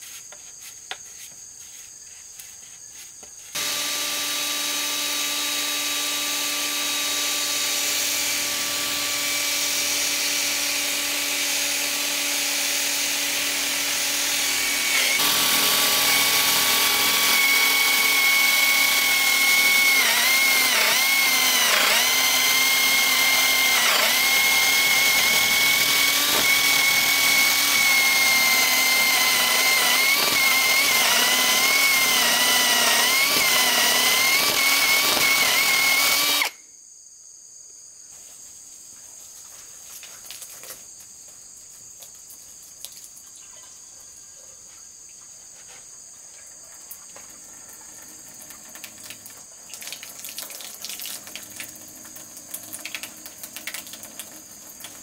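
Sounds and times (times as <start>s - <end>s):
cordless drill boring into bamboo: 3.6s - 36.6s.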